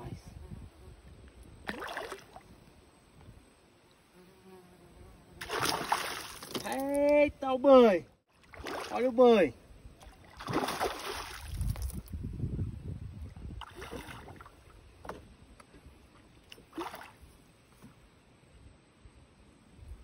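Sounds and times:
fish splashing in water: 0:05.4 - 0:06.7, 0:10.0 - 0:11.9.

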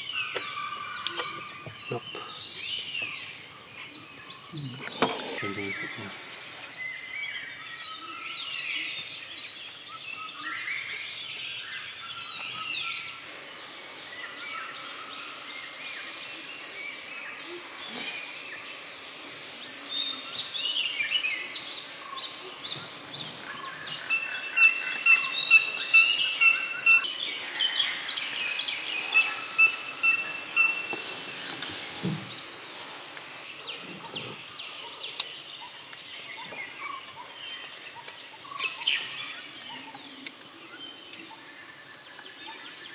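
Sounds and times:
birds calling and chirping: 0:00.0 - 0:42.9
frogs calling: 0:24.0 - 0:31.1.

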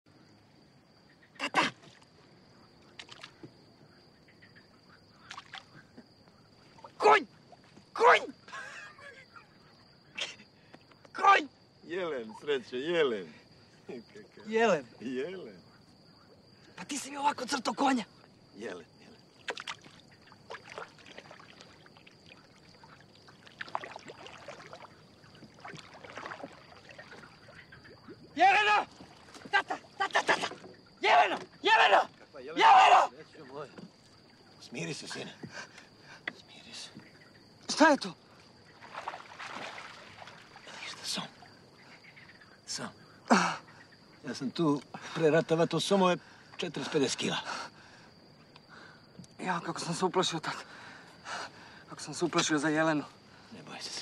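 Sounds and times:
insect trill: 0:00.1 - 0:54.0
water lapping around boat: 0:01.5 - 0:08.6, 0:18.0 - 0:32.4, 0:33.3 - 0:45.5
soft splashes: 0:01.6 - 0:03.6, 0:05.1 - 0:07.9, 0:18.1 - 0:32.3, 0:33.2 - 0:42.4.

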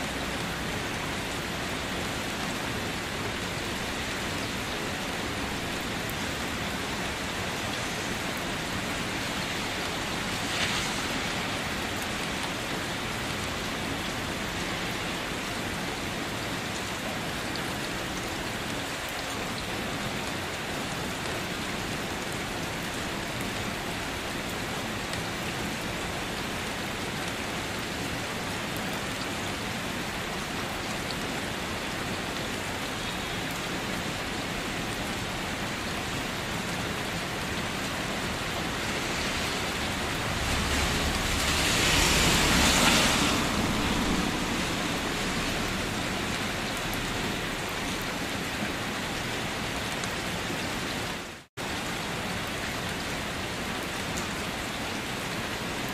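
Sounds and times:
steady rain falling: 0:00.0 - 0:55.9
low rumble: 0:39.6 - 0:46.2.

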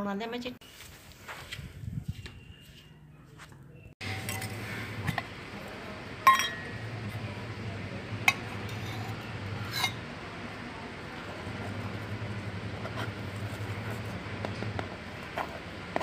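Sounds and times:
steel spoon clinking on metal: 0:06.2 - 0:06.8.

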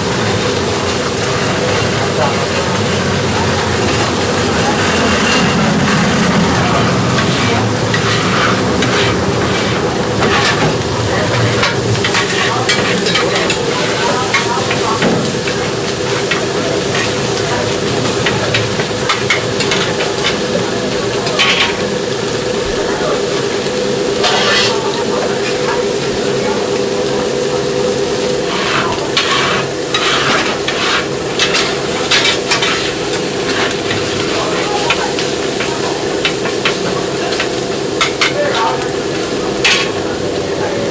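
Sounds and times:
food sizzling on griddle: 0:00.0 - 0:40.9
metal spatulas scraping griddle: 0:07.2 - 0:10.8, 0:11.6 - 0:14.5, 0:24.2 - 0:25.0, 0:28.4 - 0:35.0.

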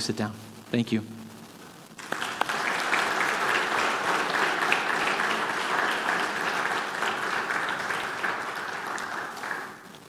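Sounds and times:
congregation applauding: 0:02.0 - 0:10.0.

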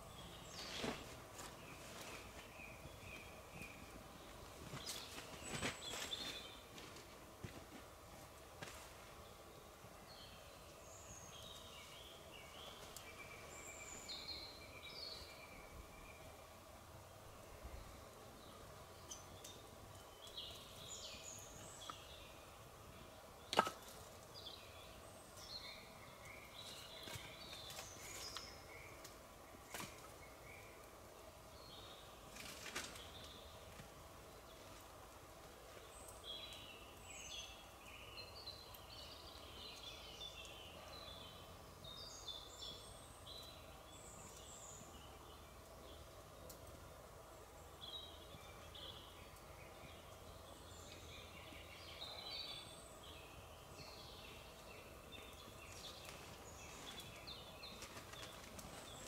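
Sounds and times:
small birds chirping: 0:00.0 - 0:59.0
faint clicks: 0:46.4 - 0:46.8.

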